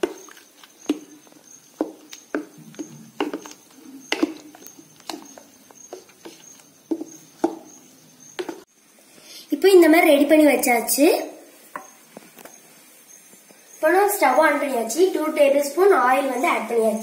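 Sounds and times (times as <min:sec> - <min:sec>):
wooden spoon stirring liquid in pot: 0:00.0 - 0:08.7.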